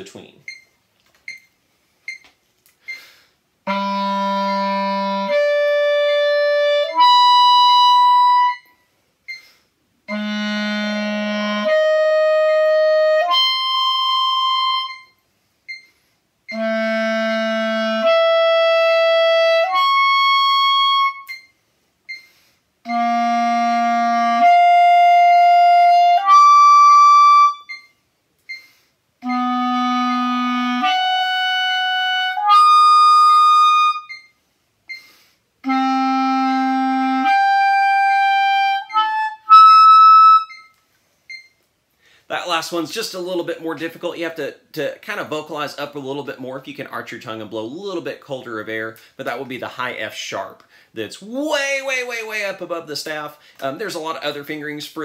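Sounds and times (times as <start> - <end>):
clarinet playing held notes: 3.7 - 8.7, 10.1 - 15.2, 16.5 - 21.4, 22.8 - 27.8, 29.2 - 34.3, 35.6 - 40.8.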